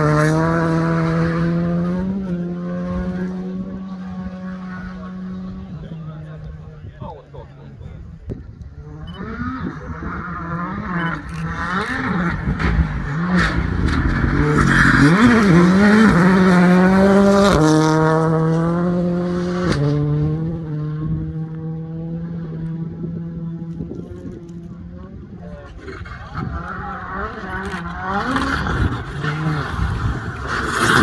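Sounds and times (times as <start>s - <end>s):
rally car engine passing: 0.0s - 6.8s, 8.8s - 31.0s
gear changes: 22.4s - 31.0s.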